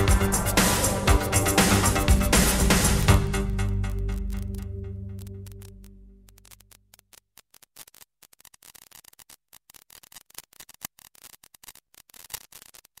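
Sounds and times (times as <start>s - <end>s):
background music: 0.0s - 6.3s
rapid irregular clicking: 5.2s - 13.0s.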